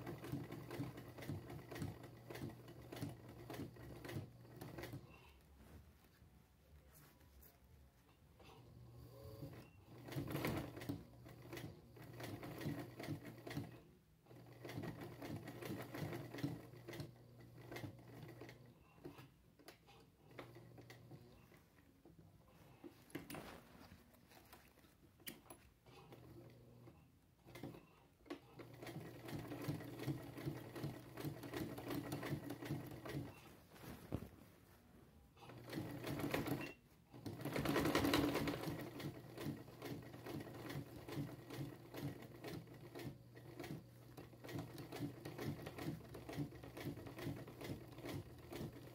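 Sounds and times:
sewing machine needle clattering: 0.0s - 5.2s, 9.4s - 21.3s, 27.4s - 33.4s, 35.5s - 48.9s
sewing machine motor hum: 0.0s - 5.3s, 8.7s - 21.6s, 24.4s - 33.5s, 35.4s - 48.9s.

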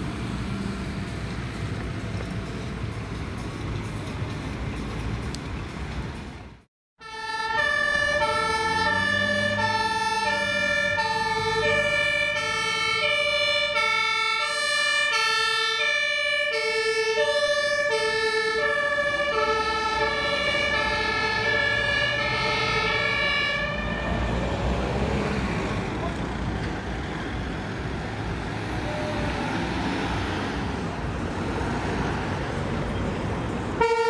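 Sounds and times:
ambulance engine and road noise: 0.0s - 34.0s
traffic noise: 0.0s - 34.0s
two-tone emergency siren: 7.0s - 24.8s, 33.8s - 34.0s.

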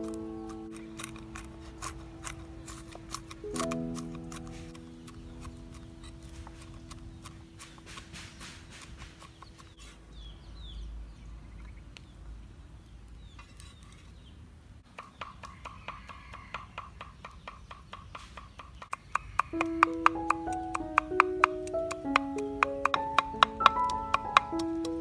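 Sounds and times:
bird chirps: 0.0s - 14.4s, 15.0s - 25.0s
cleaver chopping on wooden board: 0.4s - 9.7s, 17.9s - 25.0s.

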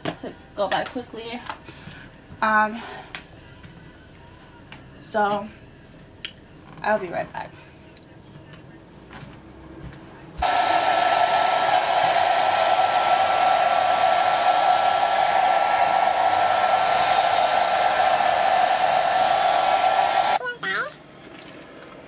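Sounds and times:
hair dryer running: 10.4s - 20.4s.

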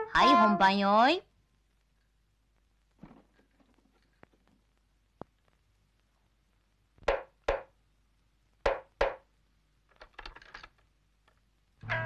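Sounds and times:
sharp wooden knocks: 7.0s - 7.7s, 8.6s - 9.2s.

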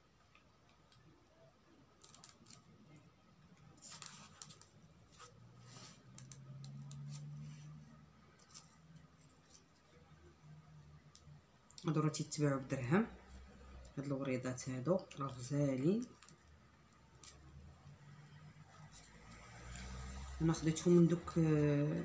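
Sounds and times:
light clicks and rustles: 1.9s - 10.4s.

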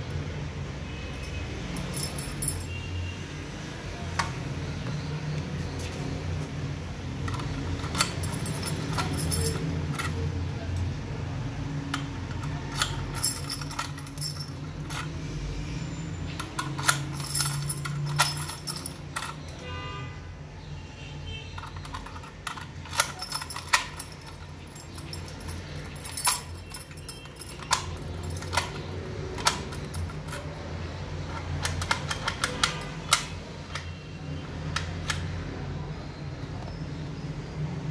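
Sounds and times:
keys jangling: 1.2s - 2.9s, 7.2s - 10.9s, 11.8s - 19.8s, 21.6s - 35.3s
key turning in metal lock: 7.1s - 11.0s, 11.8s - 15.4s, 16.2s - 19.6s, 21.6s - 35.4s.

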